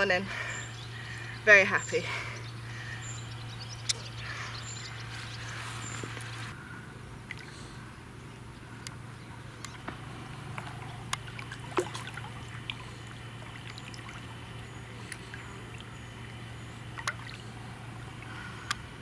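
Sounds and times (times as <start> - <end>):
steady low hum: 0.0 - 19.0
water trickling and lapping: 0.0 - 19.0
small sharp splashes: 9.7 - 18.8.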